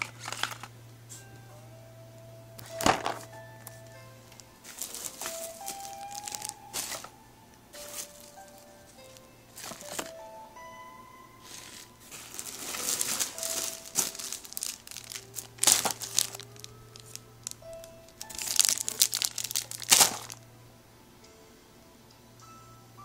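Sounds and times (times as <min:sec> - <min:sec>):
plastic packaging crinkling: 0:00.0 - 0:00.7, 0:02.6 - 0:07.2, 0:07.8 - 0:10.2, 0:11.4 - 0:20.4
faint background music: 0:00.0 - 0:23.0.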